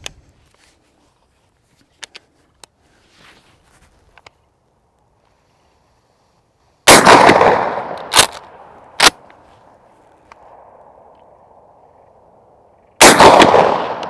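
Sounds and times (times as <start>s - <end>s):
shotgun firing with echo: 6.9s - 8.3s, 13.0s - 14.0s.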